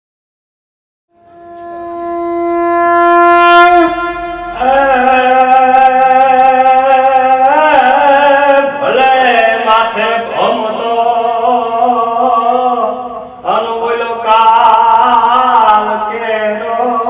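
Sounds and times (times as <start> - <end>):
long held note: 1.1 - 6.3
man singing with vibrato: 1.8 - 17.0.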